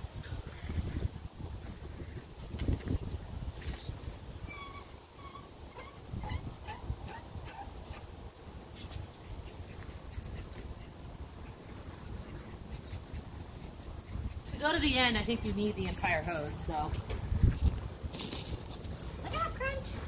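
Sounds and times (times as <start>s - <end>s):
small dog whimpering: 4.5s - 8.0s.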